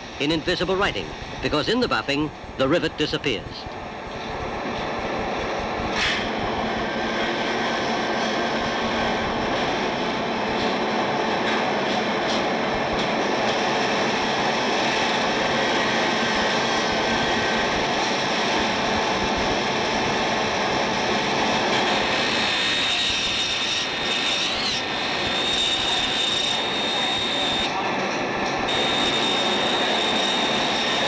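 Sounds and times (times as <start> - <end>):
high steady whine: 0.0 - 31.0
workshop machinery whirring: 19.7 - 31.0.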